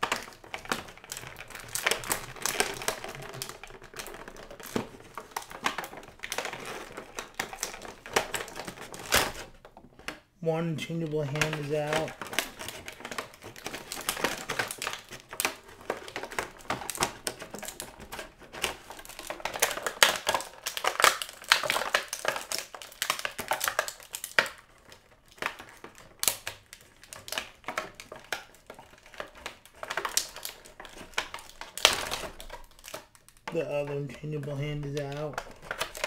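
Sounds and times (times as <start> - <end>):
plastic packaging crinkling and clicking: 0.0 - 36.0.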